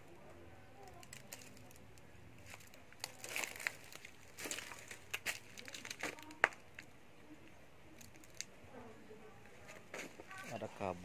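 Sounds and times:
plastic bags crinkling: 0.8 - 6.9.

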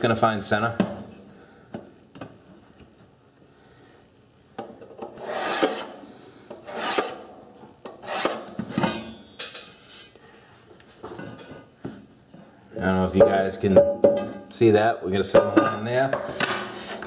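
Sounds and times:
scriber scratching metal pan: 5.2 - 6.0.

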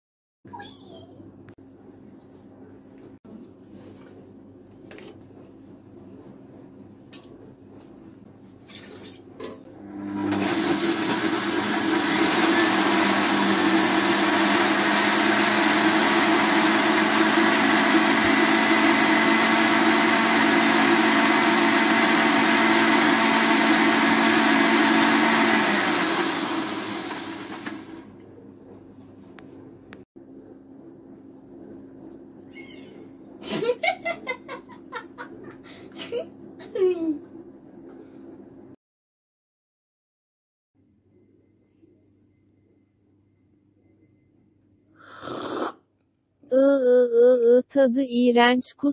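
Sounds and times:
blender motor running: 9.7 - 28.1.

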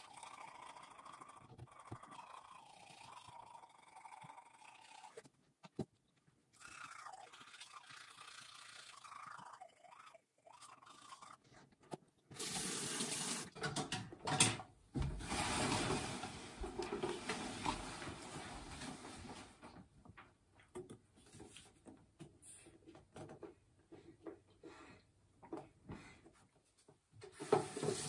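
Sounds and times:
teeth being brushed: 0.0 - 5.3, 6.5 - 12.6.

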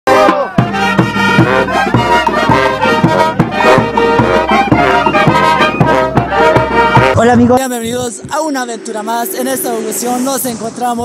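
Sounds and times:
brass band playing dance tune: 0.1 - 8.0
steady drum beat: 0.1 - 11.0.

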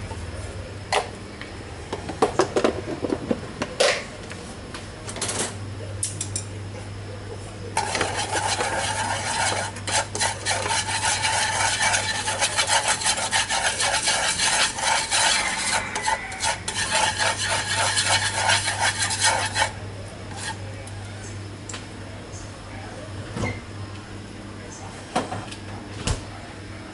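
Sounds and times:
utensil scraping sugar in frying pan: 7.8 - 20.6.

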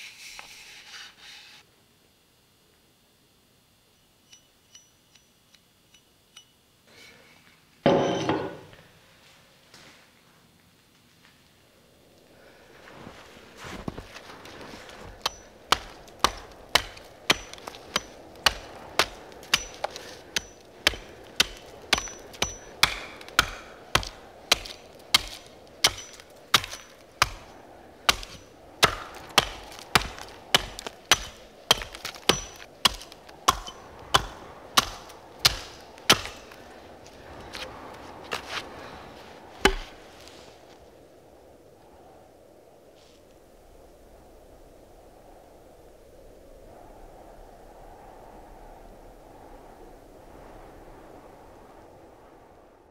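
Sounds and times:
high ring after blows: 7.9 - 8.8
axe chopping wood: 15.2 - 27.5, 28.1 - 36.5, 39.6 - 40.0.

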